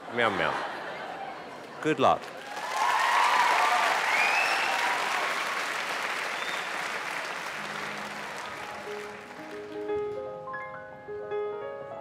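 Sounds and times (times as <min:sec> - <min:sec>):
audience applauding and cheering: 0:01.0 - 0:10.2.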